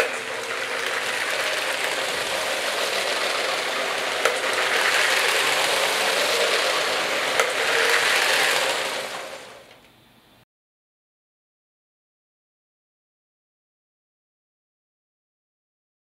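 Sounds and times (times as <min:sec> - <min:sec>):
toy train motor whirring rattle: 0:00.0 - 0:09.8.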